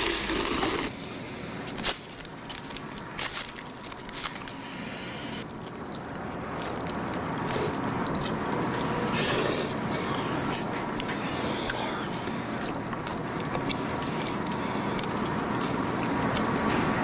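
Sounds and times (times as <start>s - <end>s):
noodles being slurped: 0.0s - 1.9s, 5.4s - 16.5s.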